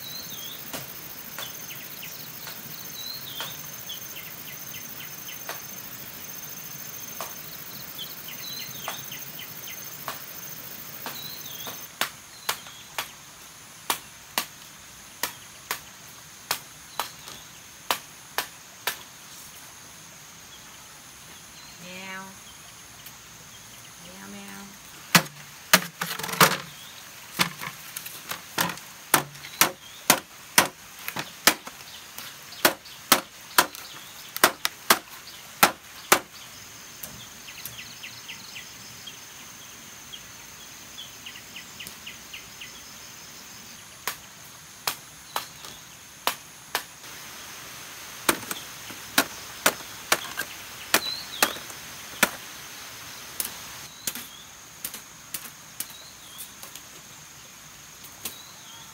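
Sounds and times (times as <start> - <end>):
blade chopping bamboo: 25.1 - 26.7, 27.4 - 31.8, 32.6 - 36.3, 48.2 - 52.4.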